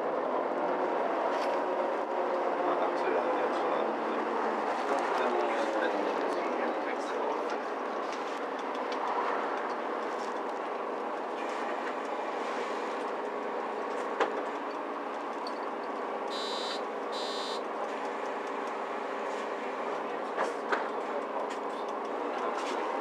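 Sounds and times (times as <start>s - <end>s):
bus cabin noise: 0.0s - 23.0s
short electronic beeps: 16.3s - 17.6s.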